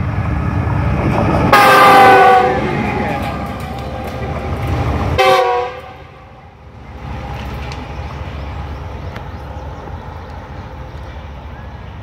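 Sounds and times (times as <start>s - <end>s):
low rumble of a train: 0.0s - 12.0s
locomotive air horn blasting: 1.5s - 2.8s, 5.2s - 6.4s.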